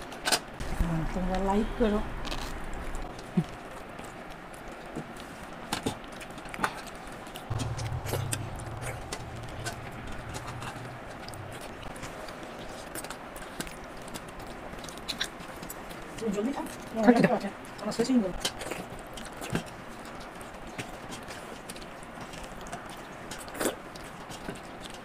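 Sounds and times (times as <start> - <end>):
low hum: 7.5 - 12.7.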